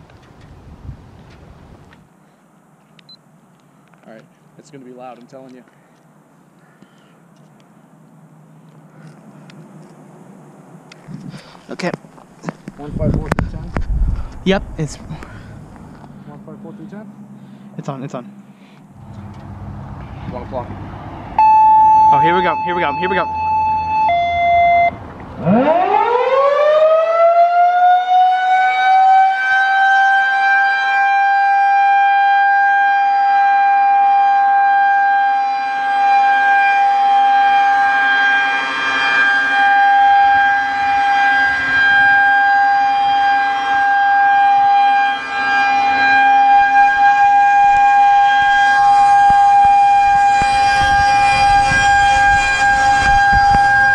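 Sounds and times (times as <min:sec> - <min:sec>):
rotating warning siren: 0:12.7 - 0:53.9.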